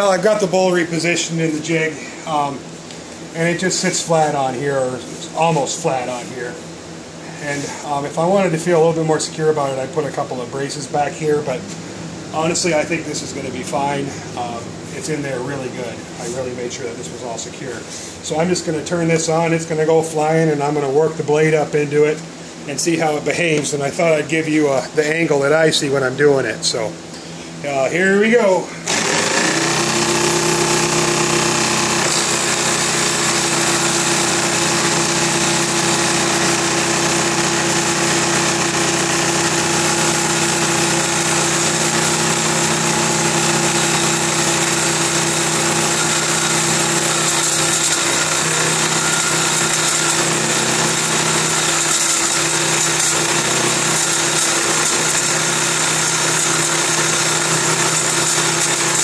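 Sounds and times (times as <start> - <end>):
table saw motor hum: 28.8 - 59.0
saw blade cutting wood: 28.9 - 59.0.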